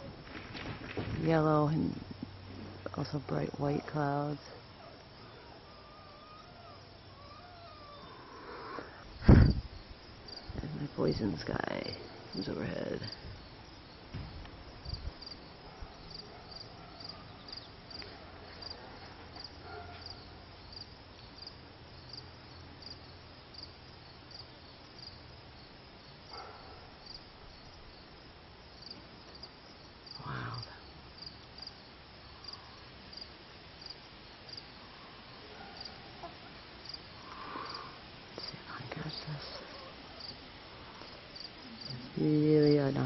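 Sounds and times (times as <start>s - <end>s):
crickets chirping: 0.0s - 43.0s
brief bump: 14.1s - 14.6s.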